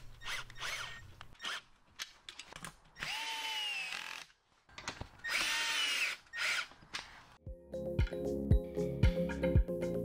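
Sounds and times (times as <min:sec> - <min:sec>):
cordless drill motor whining: 0:00.2 - 0:01.6, 0:03.0 - 0:04.3, 0:05.2 - 0:06.7.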